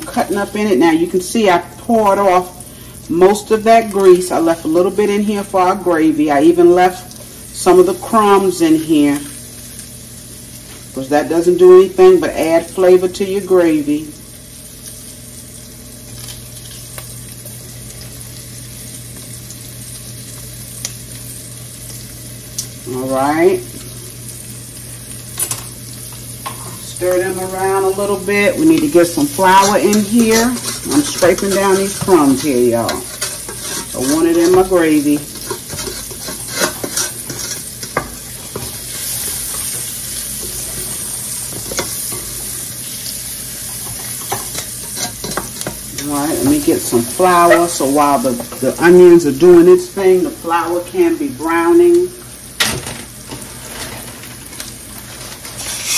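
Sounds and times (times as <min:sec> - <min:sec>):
onions sizzling in a skillet: 0:00.0 - 0:55.9
spoon scraping pan: 0:26.5 - 0:42.6, 0:43.7 - 0:49.0, 0:55.5 - 0:55.9.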